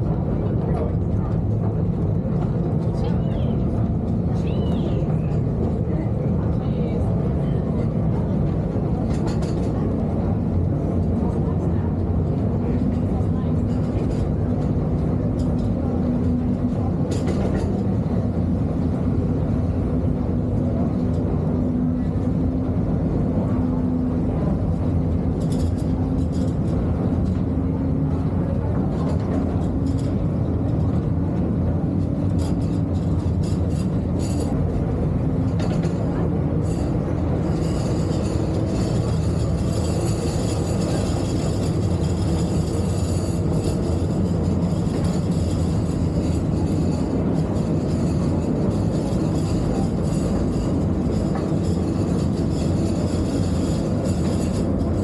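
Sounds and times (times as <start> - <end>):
train cars rumbling on rails: 0.0 - 55.0.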